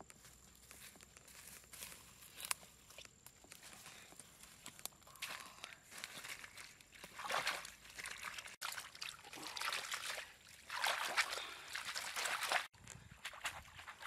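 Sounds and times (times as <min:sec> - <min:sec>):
water sloshing and trickling: 0:05.9 - 0:14.0.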